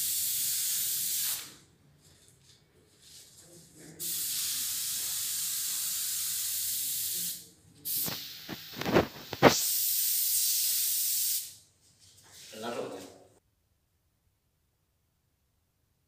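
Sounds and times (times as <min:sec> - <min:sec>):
short loud spray bursts: 0:00.0 - 0:01.6, 0:04.0 - 0:11.6
spray gun hissing: 0:00.0 - 0:01.6, 0:04.0 - 0:11.6.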